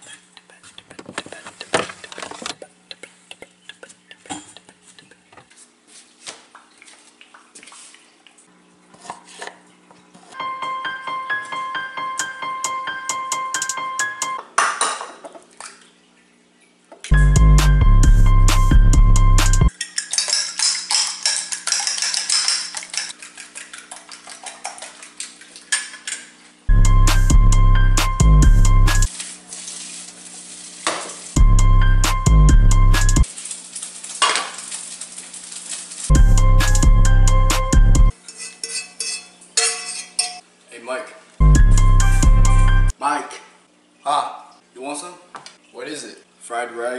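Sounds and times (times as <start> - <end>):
fork beating eggs in bowl: 0.0 - 5.7, 19.7 - 26.3, 38.1 - 40.4
music with heavy beat: 12.2 - 14.4, 17.1 - 19.7, 26.7 - 29.1, 31.4 - 33.2, 36.1 - 38.1, 41.4 - 42.9
dishes and containers clinking: 19.7 - 25.0, 38.1 - 40.4.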